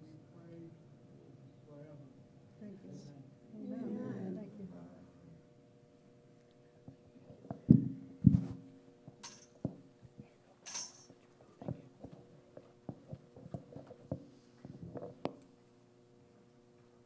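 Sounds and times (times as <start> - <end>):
microphone bumps: 7.6 - 8.6.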